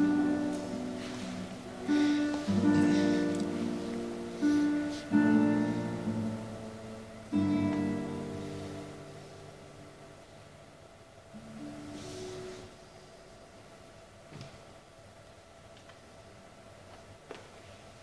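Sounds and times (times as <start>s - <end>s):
classical guitar chords: 0.0s - 13.0s.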